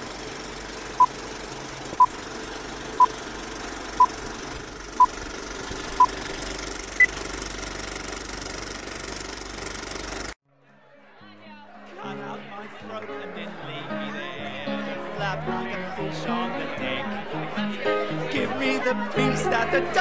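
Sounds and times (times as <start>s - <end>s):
film projector clattering: 0.0s - 10.4s.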